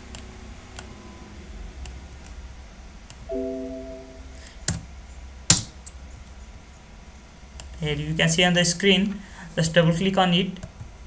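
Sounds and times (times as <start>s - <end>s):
computer alert chime: 3.3s - 4.6s.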